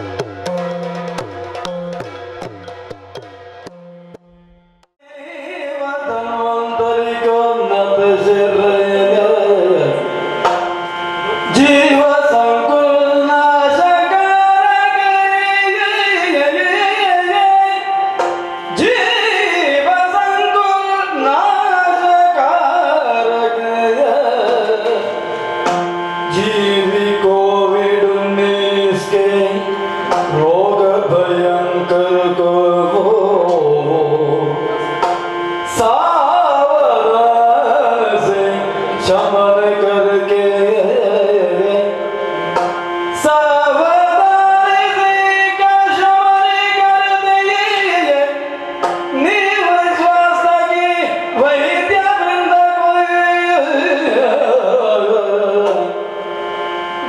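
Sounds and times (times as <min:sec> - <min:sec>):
drum accompaniment: 0:00.0 - 0:04.8, 0:10.4 - 0:10.8, 0:18.0 - 0:19.0, 0:24.4 - 0:26.0, 0:30.1 - 0:31.6, 0:35.0 - 0:36.0, 0:42.5 - 0:42.8, 0:48.8 - 0:49.2
singer with gliding melody: 0:00.0 - 0:57.0
sharp strikes: 0:10.4 - 0:11.0, 0:25.6 - 0:26.1, 0:30.0 - 0:30.5, 0:42.5 - 0:43.0
steady drone: 0:24.7 - 0:50.1.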